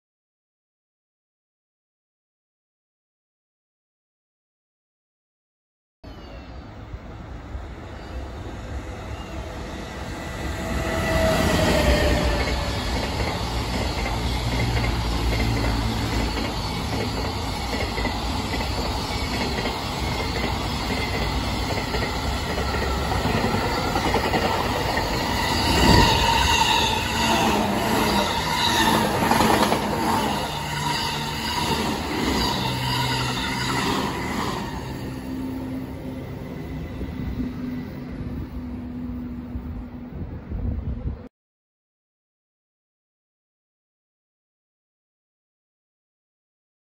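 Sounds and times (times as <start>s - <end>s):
freight train rumbling past: 6.1s - 41.3s
thin wheel squeal: 30.0s - 35.2s.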